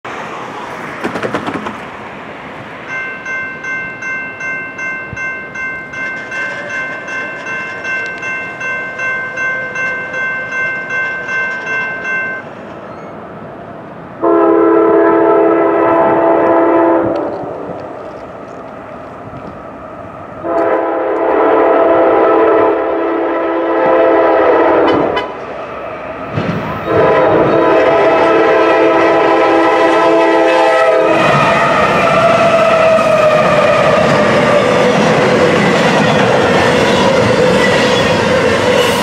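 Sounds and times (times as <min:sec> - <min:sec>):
crossing warning bell ringing: 0:02.8 - 0:13.2
locomotive air horn blasts: 0:14.2 - 0:17.6, 0:20.4 - 0:25.4, 0:26.8 - 0:31.4.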